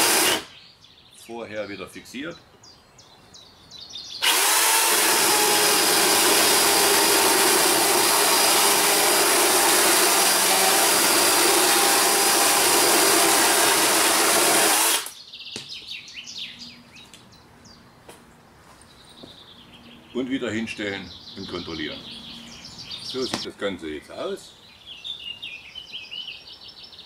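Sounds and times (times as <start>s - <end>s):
electric saw cutting wood: 0.0s - 0.5s, 4.2s - 15.2s.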